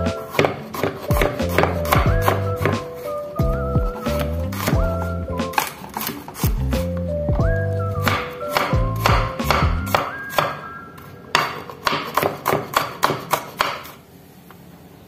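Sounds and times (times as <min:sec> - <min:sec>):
knife chopping on wooden board: 0:00.0 - 0:03.0, 0:04.0 - 0:06.9, 0:08.0 - 0:10.6, 0:11.3 - 0:14.0.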